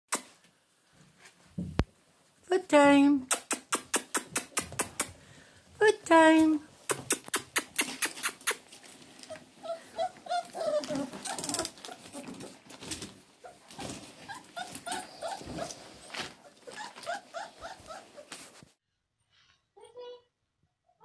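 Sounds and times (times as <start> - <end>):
sharp clicks: 3.3 - 5.1, 6.8 - 8.6
puppies whimpering: 9.2 - 12.7, 13.4 - 18.3.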